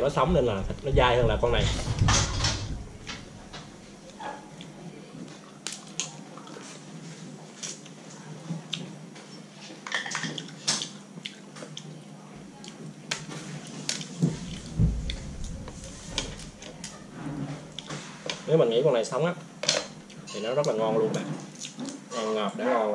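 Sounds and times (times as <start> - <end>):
wet chewing: 21.5 - 22.0.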